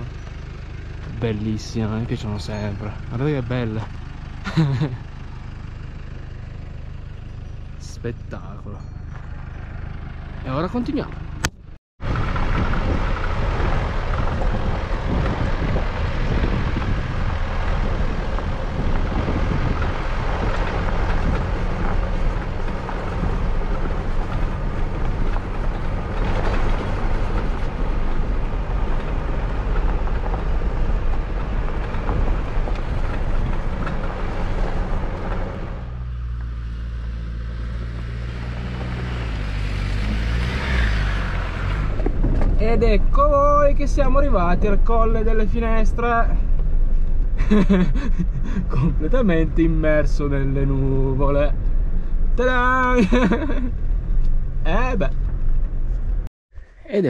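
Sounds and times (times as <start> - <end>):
car engine: 0.0 - 57.0
wind noise: 11.1 - 35.9, 37.9 - 56.7
tyres on gravel: 12.0 - 36.6.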